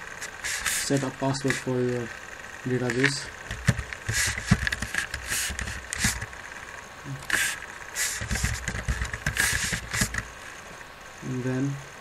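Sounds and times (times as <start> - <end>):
keyboard typing clatter: 2.8 - 6.3, 8.2 - 10.3.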